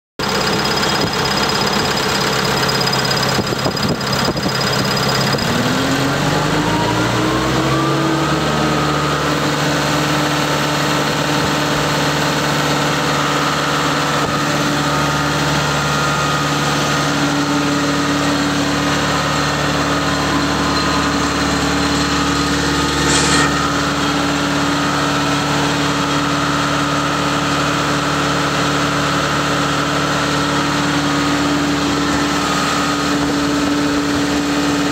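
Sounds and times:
diesel engine running: 0:00.2 - 0:34.9.

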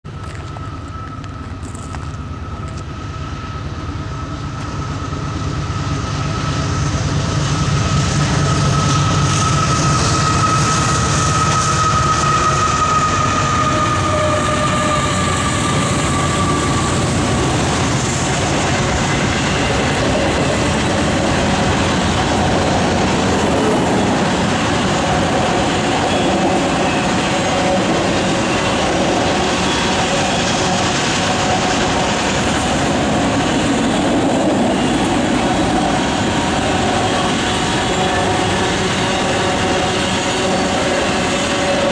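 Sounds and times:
diesel locomotives rumbling: 0:00.0 - 0:41.9
high whine: 0:00.1 - 0:41.9
train wheels clickety-clack: 0:00.1 - 0:41.9.

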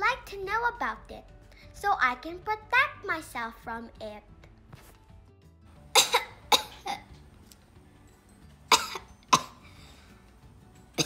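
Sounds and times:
person coughing: 0:06.0 - 0:07.0, 0:08.7 - 0:09.8.

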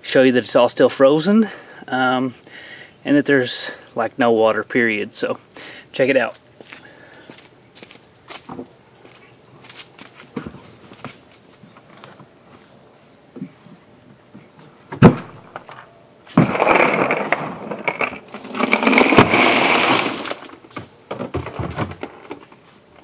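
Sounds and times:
cooler tipping on concrete: 0:15.0 - 0:22.6
ice cubes clattering: 0:16.5 - 0:20.5.

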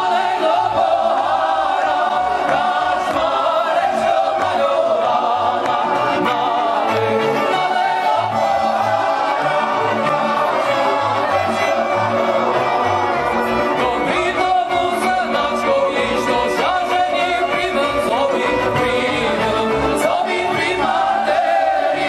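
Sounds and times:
accordion: 0:00.0 - 0:22.0
group of voices singing: 0:00.0 - 0:22.0
violins: 0:00.0 - 0:22.0
man singing: 0:13.8 - 0:20.4.

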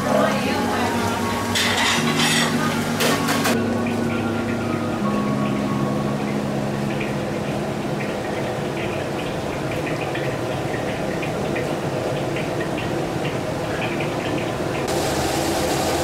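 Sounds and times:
low hum: 0:00.0 - 0:12.5
kitchen background noise: 0:00.0 - 0:15.2.

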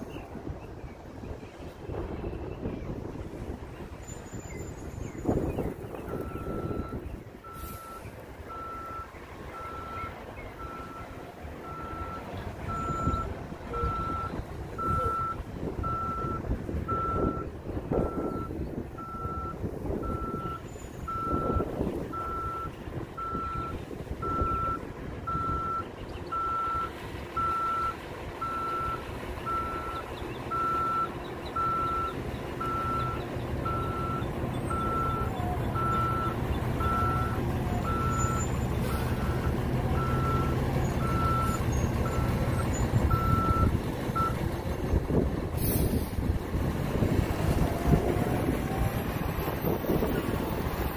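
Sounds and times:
bus engine rumbling: 0:00.0 - 0:50.9
bus backup alarm beeping: 0:04.0 - 0:44.5.

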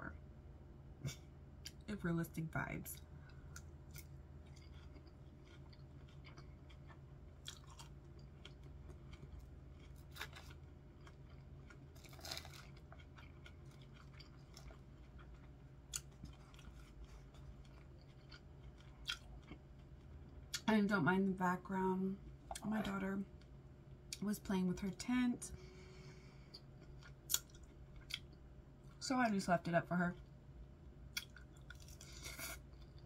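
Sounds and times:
chewing and crunching salad: 0:03.2 - 0:20.7, 0:26.5 - 0:29.0, 0:31.1 - 0:33.0.

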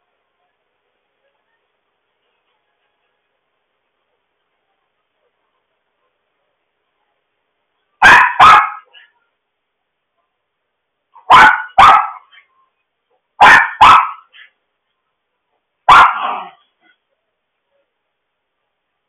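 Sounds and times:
dog barking sharply: 0:08.0 - 0:09.1, 0:11.2 - 0:12.4, 0:13.4 - 0:14.5, 0:15.9 - 0:16.6.

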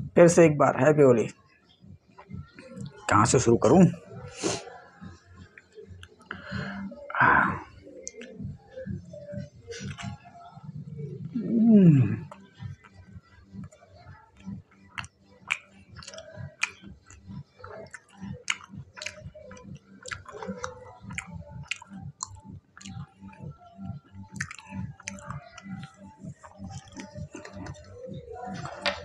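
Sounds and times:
wet mouth clicks: 0:08.0 - 0:08.4, 0:09.7 - 0:10.2, 0:14.4 - 0:27.9
person chewing crunchy food: 0:14.9 - 0:23.1, 0:24.3 - 0:29.0.

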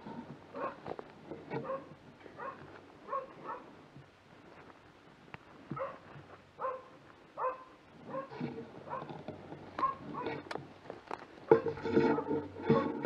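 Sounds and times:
dog barking: 0:00.6 - 0:00.8, 0:01.6 - 0:03.7, 0:05.8 - 0:09.1, 0:09.8 - 0:10.4.

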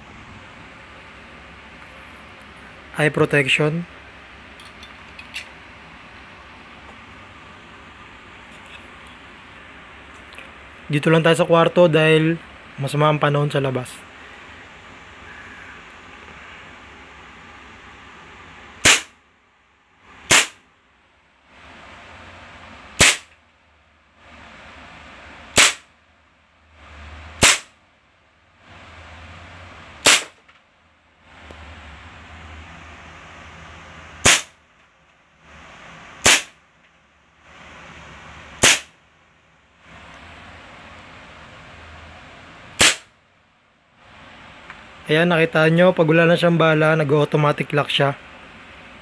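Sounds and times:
low hiss and hum: 0:00.0 - 0:49.0
airsoft pistol shots: 0:18.8 - 0:19.2, 0:20.3 - 0:20.6, 0:23.0 - 0:23.3, 0:25.6 - 0:25.9, 0:27.4 - 0:27.8, 0:30.0 - 0:30.4, 0:34.2 - 0:34.6, 0:36.2 - 0:36.6, 0:38.6 - 0:38.9, 0:42.8 - 0:43.1.

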